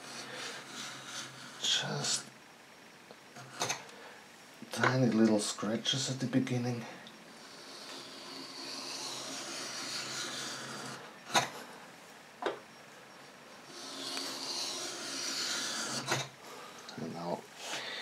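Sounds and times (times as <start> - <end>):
hand tool scraping wood: 0.0 - 2.2, 7.3 - 11.5, 13.7 - 16.3.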